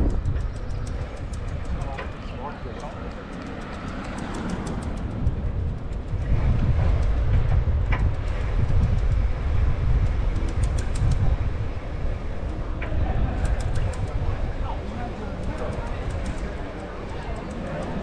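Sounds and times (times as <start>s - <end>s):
bicycle tyres on asphalt: 0.0s - 18.0s
wind buffeting microphone: 0.0s - 18.0s.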